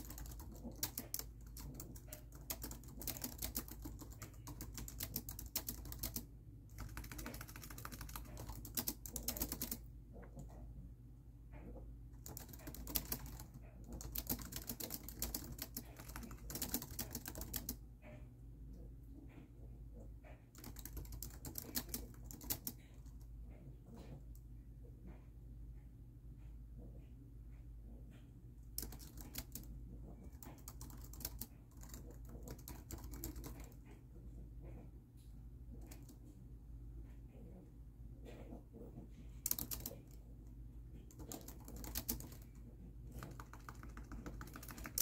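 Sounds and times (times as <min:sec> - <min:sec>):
fast typing on laptop keyboard: 0:00.0 - 0:10.4, 0:12.2 - 0:17.8, 0:20.5 - 0:23.2, 0:28.8 - 0:33.9, 0:39.4 - 0:40.3, 0:40.9 - 0:45.0.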